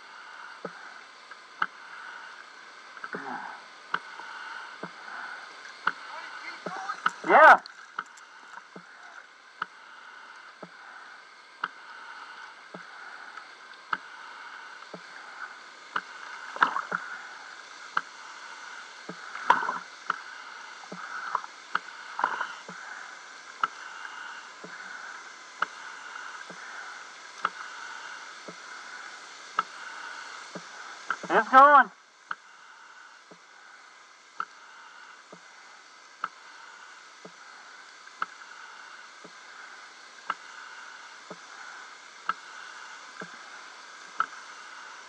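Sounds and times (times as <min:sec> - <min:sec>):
faint steady whine: 0:00.0 - 0:45.0
small waves lapping: 0:00.0 - 0:45.0
light ticks: 0:00.6 - 0:01.8, 0:03.9 - 0:05.0, 0:09.6 - 0:10.8, 0:11.6 - 0:11.8, 0:12.4 - 0:14.1, 0:15.9 - 0:17.0, 0:23.6 - 0:26.6, 0:27.2 - 0:27.7, 0:29.5 - 0:31.3, 0:34.4 - 0:34.6, 0:36.2 - 0:36.4, 0:38.0 - 0:38.6, 0:40.2 - 0:40.5, 0:41.2 - 0:41.6, 0:42.2 - 0:43.4, 0:44.1 - 0:44.5
water splashes: 0:00.6 - 0:33.5.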